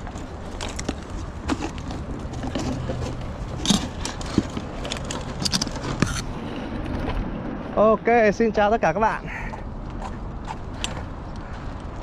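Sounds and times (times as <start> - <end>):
trolley and bucket rattling: 0.0 - 6.2.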